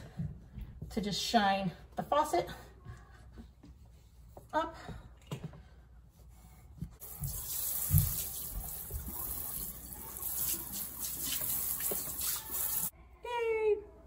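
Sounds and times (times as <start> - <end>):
sink sprayer spraying water: 7.0 - 12.9.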